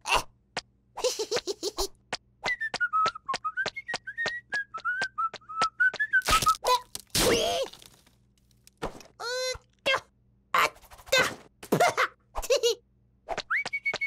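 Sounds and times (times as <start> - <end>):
cartoon chick whistling a tune: 13.5 - 14.0.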